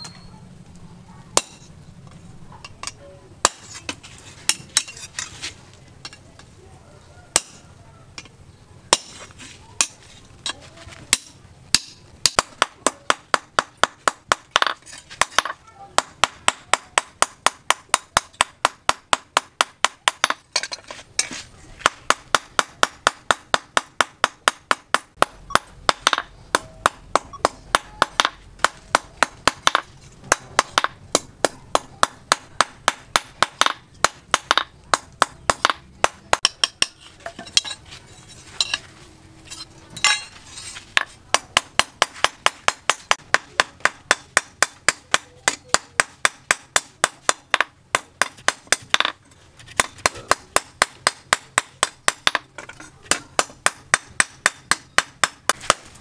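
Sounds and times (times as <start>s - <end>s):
hammer striking steel on anvil: 1.4s - 1.7s, 7.3s - 7.6s, 11.1s - 37.8s, 39.5s - 40.4s.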